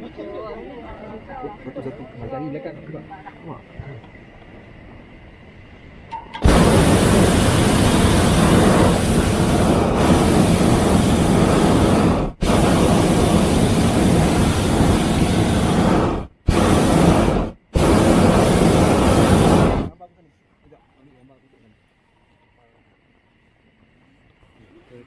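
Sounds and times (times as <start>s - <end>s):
propane burner firing: 0.0s - 20.0s.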